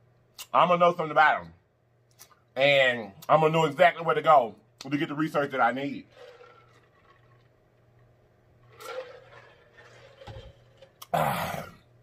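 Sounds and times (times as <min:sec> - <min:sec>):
man gulping liquid: 0:08.6 - 0:11.9.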